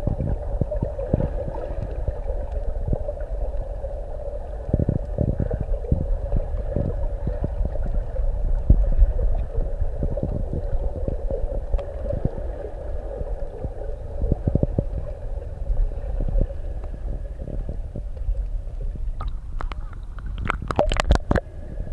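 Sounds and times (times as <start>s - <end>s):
water splashing: 0.0s - 21.6s
steady hum: 0.0s - 21.9s
underwater rumble of moving water: 0.0s - 21.9s
small knocks underwater: 4.6s - 12.6s, 16.2s - 21.5s.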